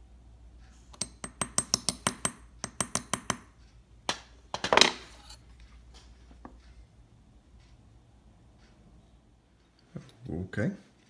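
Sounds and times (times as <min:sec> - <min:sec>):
small hammer tapping metal punch: 0:00.9 - 0:04.9.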